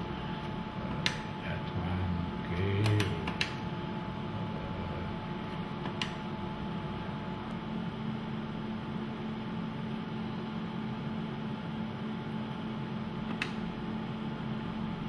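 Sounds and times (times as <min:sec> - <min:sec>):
machine hum: 0:00.0 - 0:15.0
soft control clicks: 0:02.8 - 0:03.6, 0:13.3 - 0:13.6.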